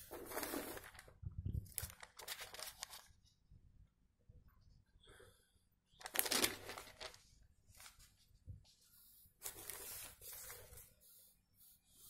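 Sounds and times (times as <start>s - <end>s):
newspaper pages rustling: 0.0s - 3.2s, 6.0s - 11.2s.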